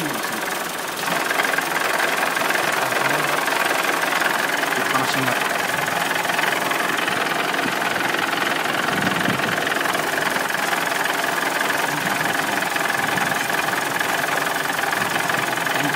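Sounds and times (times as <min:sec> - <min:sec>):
car engine idling: 0:00.0 - 0:15.9
constant high hum: 0:04.8 - 0:15.9.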